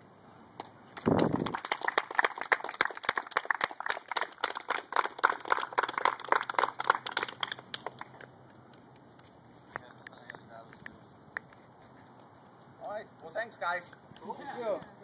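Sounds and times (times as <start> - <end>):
people clapping: 0.6 - 8.3.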